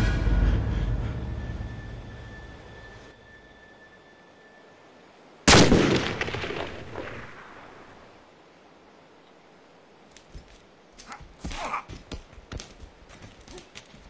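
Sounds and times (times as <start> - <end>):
loud gunshot with echo: 5.5 - 7.3.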